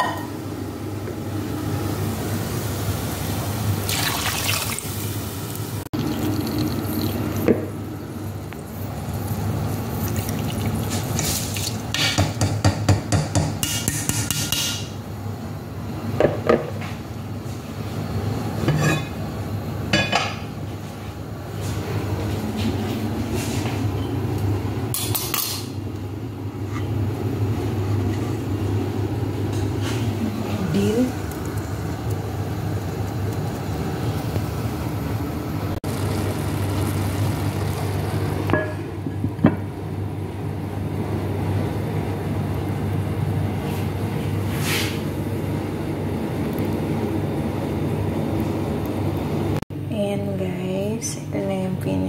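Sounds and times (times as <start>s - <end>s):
water poured into pot: 3.8s - 5.3s, 6.0s - 7.4s, 9.9s - 11.8s.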